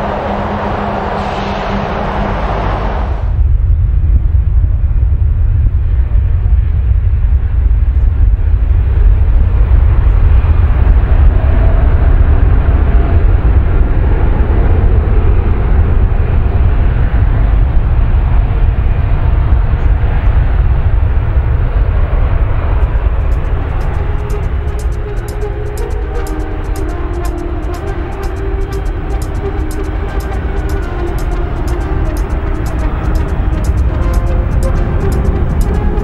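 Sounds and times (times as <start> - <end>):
jet engines roaring: 0.0 - 3.5, 21.8 - 36.0.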